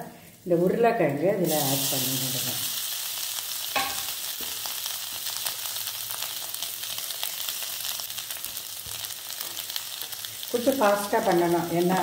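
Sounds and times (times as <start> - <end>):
oil sizzling in a pan: 1.4 - 12.0
metal scraping on pan: 3.7 - 4.7.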